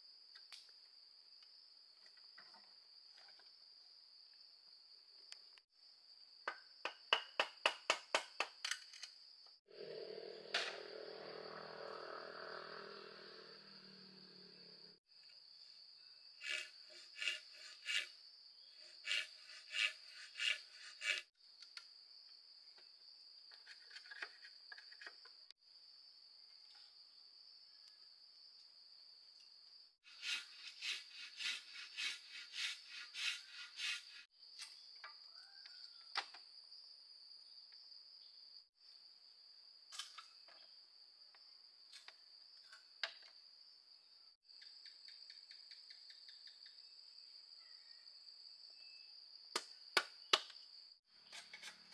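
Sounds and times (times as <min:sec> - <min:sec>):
insects chirring: 0:08.7 - 0:51.9.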